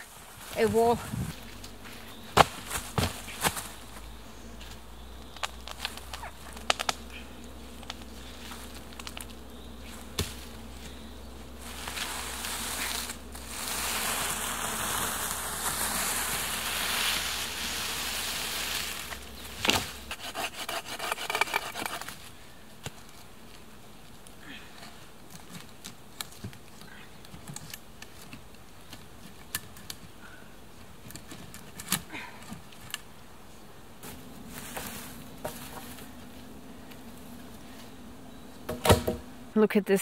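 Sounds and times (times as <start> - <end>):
footsteps in dry leaves: 0.0 - 4.8, 8.0 - 20.1, 34.0 - 36.5
log dragged over forest floor: 7.9 - 22.4, 34.0 - 38.0
wood knocking: 38.7 - 39.2.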